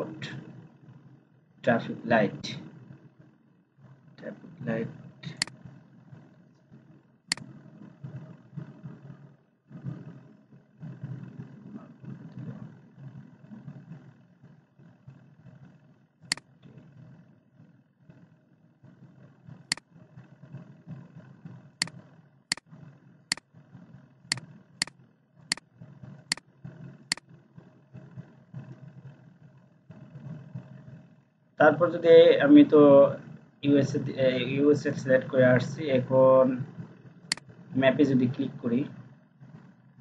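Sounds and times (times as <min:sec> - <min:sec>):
steady low rumble: 0:00.0 - 0:24.8
computer mouse clicking: 0:05.2 - 0:05.7, 0:07.3 - 0:07.5, 0:37.3 - 0:37.5.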